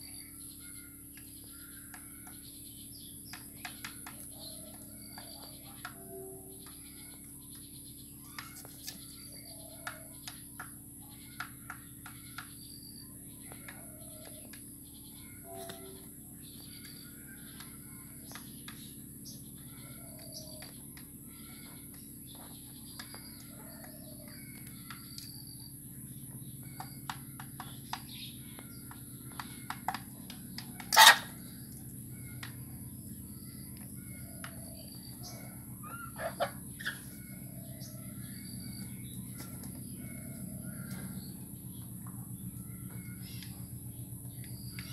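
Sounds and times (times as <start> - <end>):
beaks tapping: 0.5 - 44.9
chickens clucking: 28.8 - 33.0, 33.8 - 43.6.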